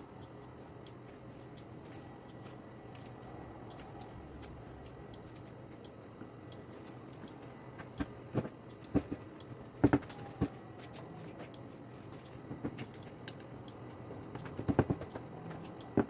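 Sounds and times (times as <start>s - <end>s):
hands pressing dough on tray: 14.2s - 16.0s.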